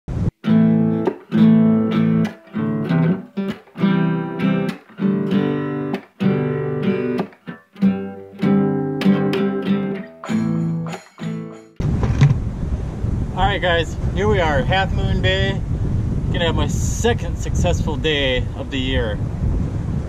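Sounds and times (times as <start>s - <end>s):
acoustic guitar strumming chords: 0.4s - 12.5s.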